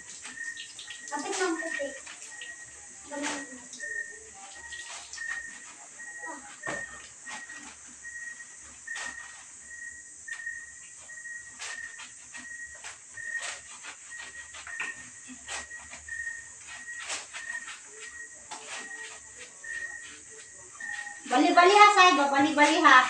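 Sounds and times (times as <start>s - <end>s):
water splashing in bucket: 0.0s - 3.9s
steady high hiss: 0.0s - 23.0s.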